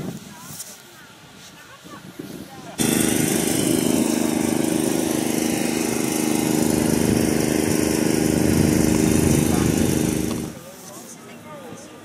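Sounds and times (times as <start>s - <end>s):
engine droning steadily: 2.8s - 10.6s.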